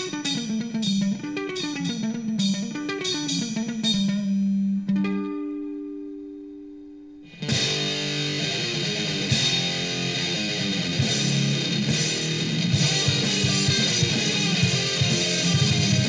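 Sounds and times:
electric guitar and bass rock: 7.3 - 16.0.

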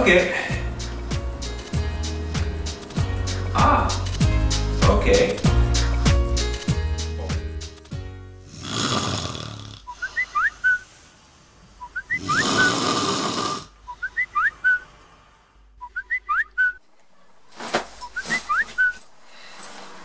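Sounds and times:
person snoring: 8.4 - 10.5, 12.1 - 13.8.

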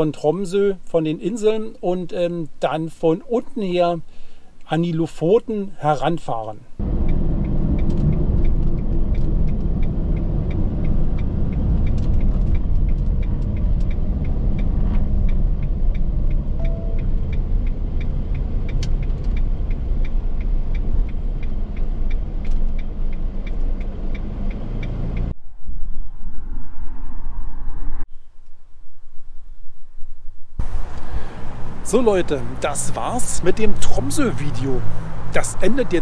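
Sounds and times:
engine and road rumble: 0.0 - 36.0
faint regular ticking: 6.7 - 25.3.

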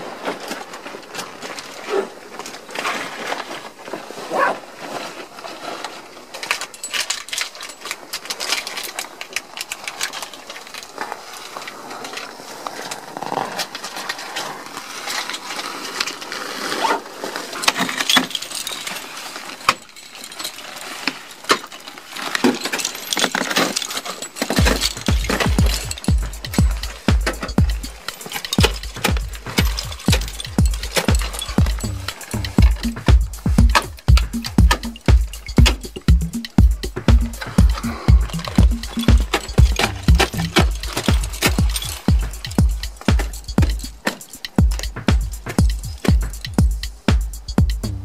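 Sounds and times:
metal hardware clinking: 22.6 - 47.6
music with low beat: 24.6 - 48.0.

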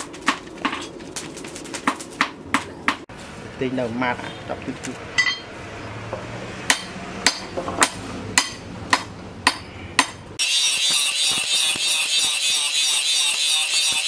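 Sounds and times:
angle grinder grinding steel: 10.4 - 14.0.

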